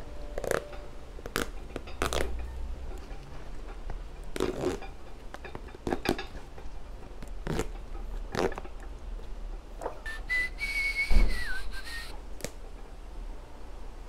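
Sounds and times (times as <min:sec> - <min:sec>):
high whistle-like squeak: 0:10.0 - 0:12.2
dull thump: 0:11.0 - 0:11.5.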